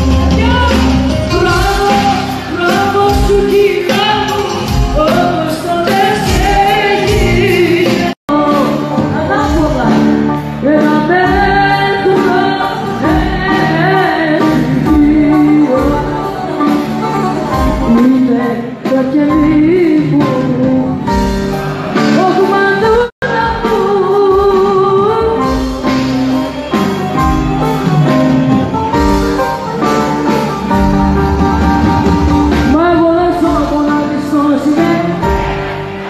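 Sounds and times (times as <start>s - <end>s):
woman singing: 0.0s - 21.4s, 22.0s - 25.8s, 32.5s - 35.7s
guitar: 0.0s - 36.0s.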